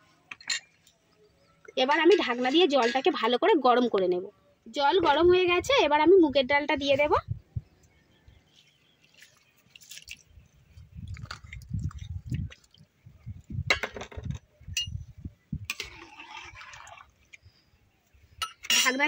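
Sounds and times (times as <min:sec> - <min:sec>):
ladle swirling through water: 0:15.8 - 0:17.3
metal clinking on pan: 0:18.4 - 0:19.0.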